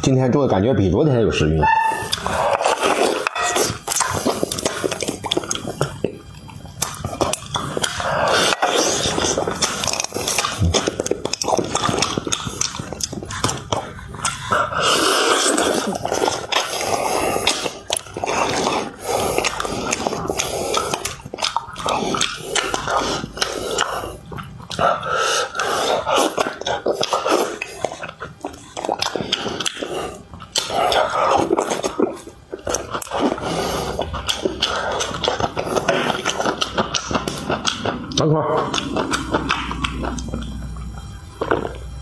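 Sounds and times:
man eating and slurping: 0:01.6 - 0:42.0
wet mouth smacks and clicks: 0:02.1 - 0:14.5, 0:19.0 - 0:24.8, 0:25.5 - 0:32.0, 0:34.0 - 0:41.9
heavy breaths through the nose: 0:24.8 - 0:26.4.

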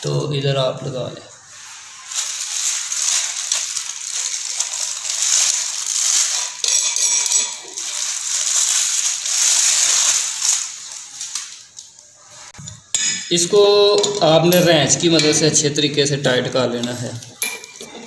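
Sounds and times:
metallic clinking: 0:06.0 - 0:08.2.

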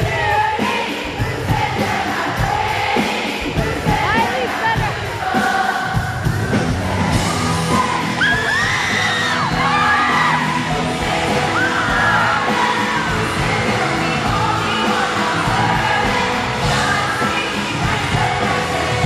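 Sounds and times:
live pop song with singing: 0:00.0 - 0:19.0
fans screaming: 0:06.4 - 0:19.0.

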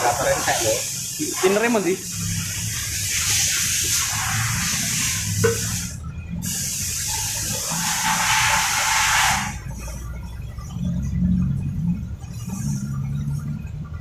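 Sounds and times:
spray hissing under pressure: 0:00.0 - 0:10.0.

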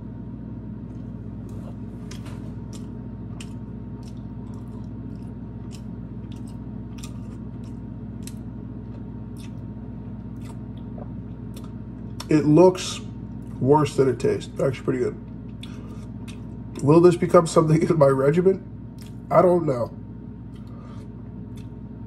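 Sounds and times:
steady low hum: 0:00.0 - 0:22.0
person chewing: 0:00.9 - 0:12.3, 0:13.3 - 0:13.6, 0:15.3 - 0:16.8, 0:18.9 - 0:19.3, 0:20.5 - 0:21.9
wet mouth clicks and squelches: 0:09.3 - 0:09.6.

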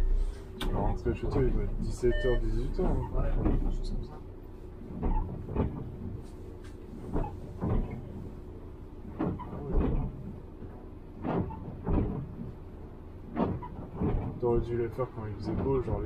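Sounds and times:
bus engine hum: 0:00.0 - 0:16.0
knocks and rattles: 0:09.1 - 0:12.5.

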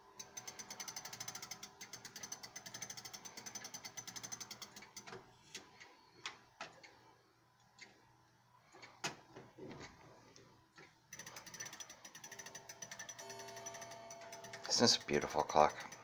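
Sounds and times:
clock winding ratchet clicking: 0:00.2 - 0:05.6, 0:11.1 - 0:16.0.

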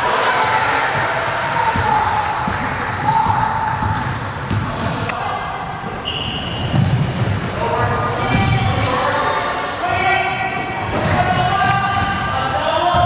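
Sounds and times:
hubbub of voices: 0:00.0 - 0:13.0
basketball bouncing: 0:01.7 - 0:05.1, 0:06.6 - 0:08.6, 0:10.5 - 0:13.0
high squeak or whistle: 0:04.7 - 0:07.7, 0:08.5 - 0:10.1.

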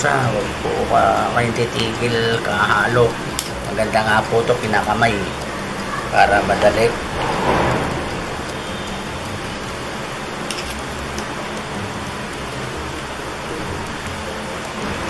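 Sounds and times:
steady hiss: 0:00.0 - 0:15.0
forks clicking and scraping in bowl: 0:10.5 - 0:11.3.

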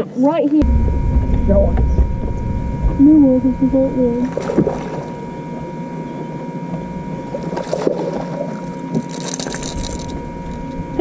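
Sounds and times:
steady hum: 0:00.6 - 0:11.0
wind and water noise: 0:00.6 - 0:11.0
fish splashing at surface: 0:07.4 - 0:10.1.

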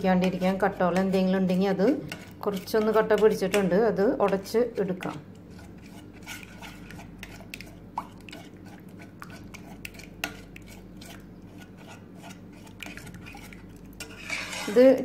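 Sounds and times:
metal spoon scraping saucepan: 0:00.0 - 0:04.5, 0:05.5 - 0:07.7, 0:09.5 - 0:15.0
low steady hum: 0:00.0 - 0:15.0.

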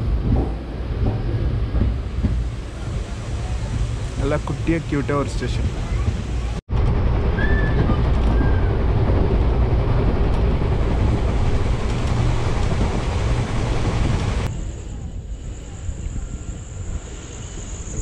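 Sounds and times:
train rumbling on track: 0:00.0 - 0:18.0
crickets chirping: 0:14.5 - 0:18.0.

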